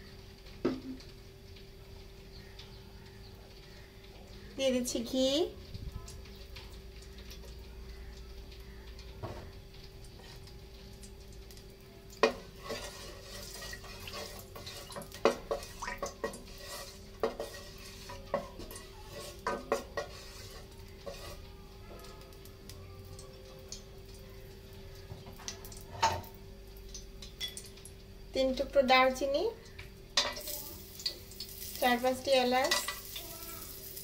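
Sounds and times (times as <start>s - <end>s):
faint steady hum: 0.0s - 34.0s
spatula scraping metal pot: 12.2s - 21.5s.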